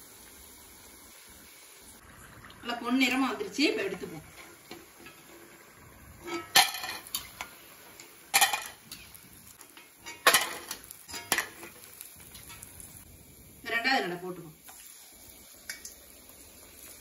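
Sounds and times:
steel skimmer clanking on strainer: 6.2 - 7.3.

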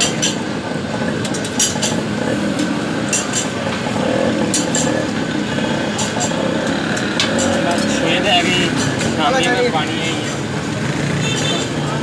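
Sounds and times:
street stall background noise: 0.0 - 12.0.

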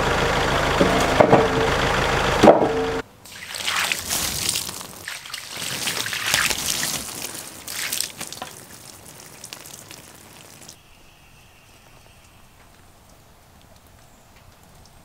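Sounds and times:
water splashing over wood slabs: 3.2 - 10.8.

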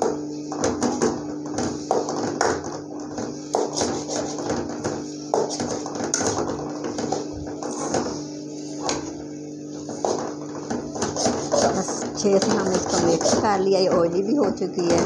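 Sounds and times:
steady low hum: 0.0 - 15.0
metal spoon scraping pan: 11.0 - 14.0.

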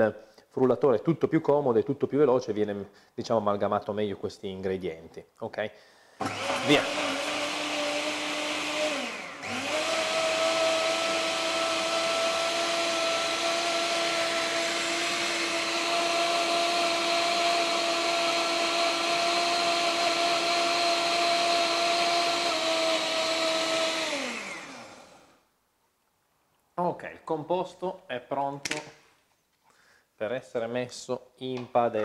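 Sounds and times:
blender motor whirring: 6.2 - 25.4.

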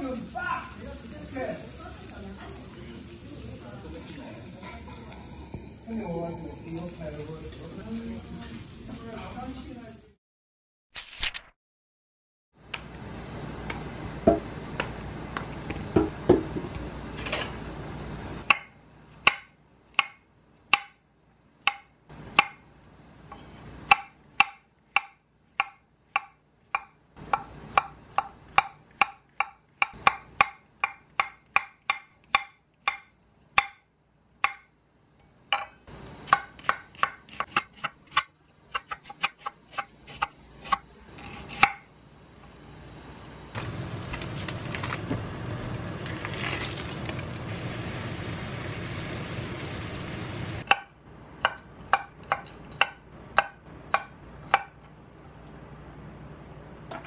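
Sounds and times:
knife chopping on wooden board: 18.5 - 21.0, 23.9 - 33.8, 34.4 - 34.7, 35.5 - 41.8, 50.7 - 54.8.

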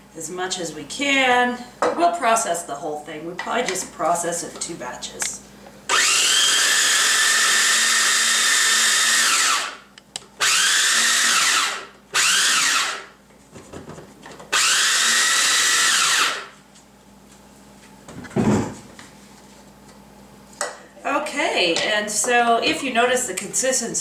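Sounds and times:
electric food chopper whining: 5.9 - 13.1, 14.5 - 16.5
thump: 18.3 - 18.8.

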